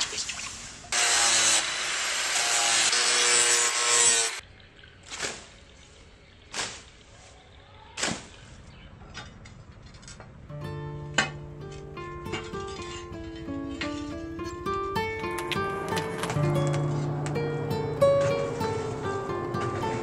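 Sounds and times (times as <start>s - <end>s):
blade swishing through grass: 6.5s - 7.3s.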